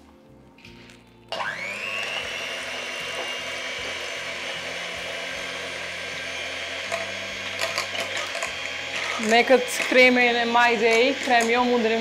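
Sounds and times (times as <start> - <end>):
electric hand mixer whirring: 1.3 - 12.0.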